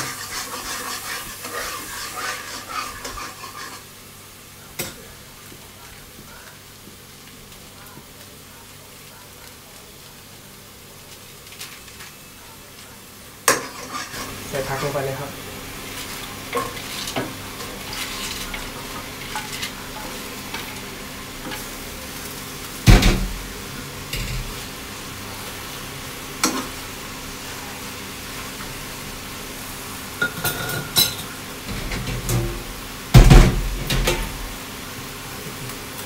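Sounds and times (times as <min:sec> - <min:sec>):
spatula scraping and knocking pan: 0:00.0 - 0:03.9, 0:13.5 - 0:15.0, 0:15.9 - 0:20.8
vegetables sizzling in a wok: 0:00.0 - 0:36.0.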